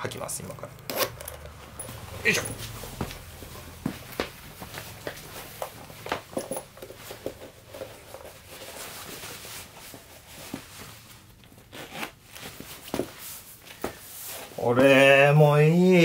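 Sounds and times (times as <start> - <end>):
sneaker rustling and knocking: 1.5 - 11.1, 12.4 - 14.5
light taps and shuffles: 1.5 - 11.2.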